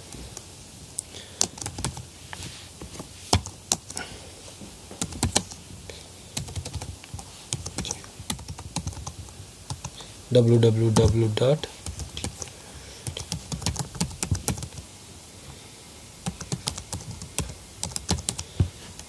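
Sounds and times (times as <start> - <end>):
computer keyboard typing: 1.4 - 2.0, 3.3 - 4.0, 5.0 - 5.6, 6.4 - 6.9, 7.5 - 10.0, 11.8 - 14.8, 16.2 - 19.0.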